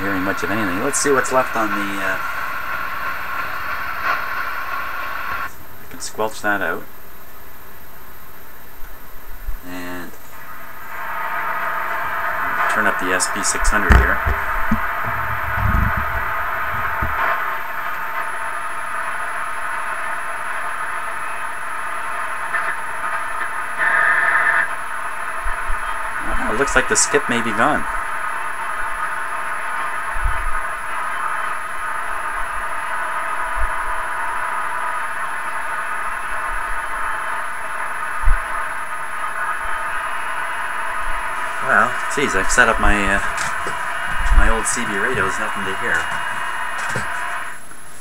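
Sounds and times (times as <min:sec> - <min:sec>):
radio static hiss: 0:00.0 - 0:48.0
soft low bump: 0:13.9 - 0:17.2
low rumble: 0:14.4 - 0:17.6.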